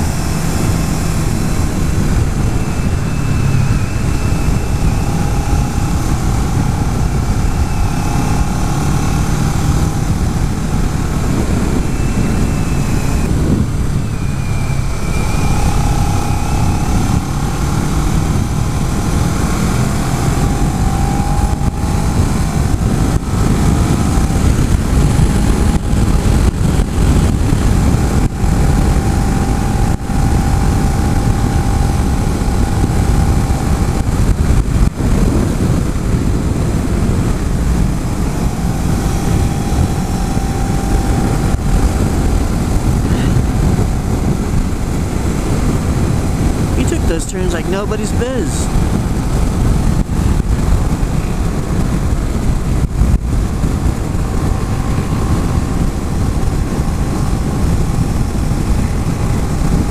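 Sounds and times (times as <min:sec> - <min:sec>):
motorcycle engine revving: 0:00.0 - 0:47.4, 0:48.1 - 0:59.9
wind rush on microphone: 0:00.0 - 0:59.9.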